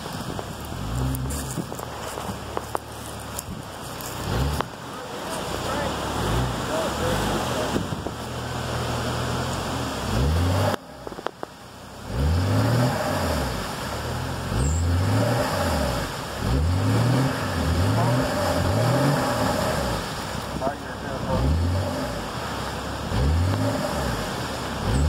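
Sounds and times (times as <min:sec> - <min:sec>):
wheels spinning in mud: 0:00.0 - 0:25.0
engine revving in bursts: 0:10.0 - 0:10.8, 0:12.0 - 0:13.8, 0:14.4 - 0:20.3, 0:23.0 - 0:25.0.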